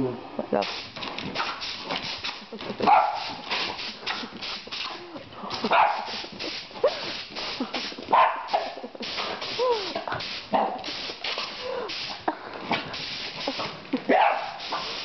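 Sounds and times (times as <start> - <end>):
air blow gun hissing: 0.6 - 2.6, 3.2 - 5.0, 5.6 - 15.0
dog barking and whining: 2.8 - 3.4, 5.7 - 6.2, 8.1 - 8.8, 14.1 - 14.6.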